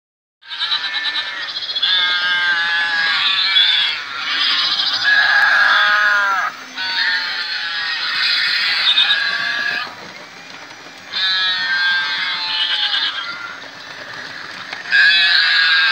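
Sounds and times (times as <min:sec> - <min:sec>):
goat and sheep bleats: 0:00.4 - 0:10.0, 0:11.1 - 0:15.9
cattle mooing: 0:01.9 - 0:09.9, 0:14.9 - 0:15.9.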